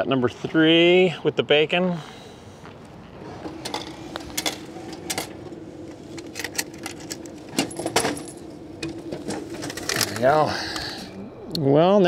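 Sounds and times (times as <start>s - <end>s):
vending machine motor hum: 3.2s - 11.5s.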